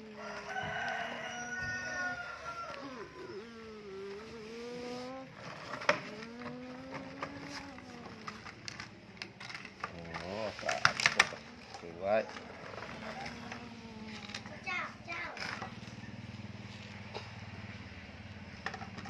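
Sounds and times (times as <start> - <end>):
child humming engine-like drone: 0.0 - 8.9, 12.8 - 15.9.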